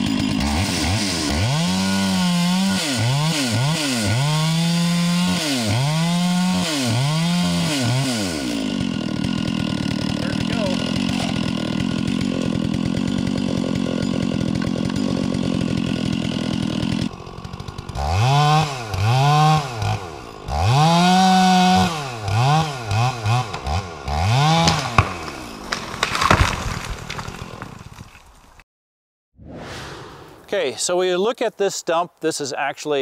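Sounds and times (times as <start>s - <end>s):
wood cracking: 0.0s - 19.2s, 21.7s - 28.6s
chainsaw engine revving: 0.0s - 27.8s
chainsaw cutting wood: 0.0s - 28.6s.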